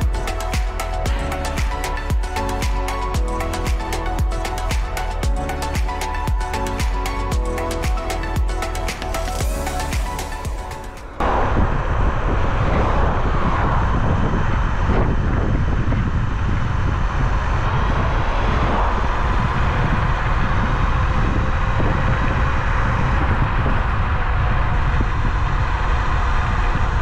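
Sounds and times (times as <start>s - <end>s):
electric scooter road noise: 0.0s - 27.0s
wind buffeting microphone: 0.0s - 27.0s.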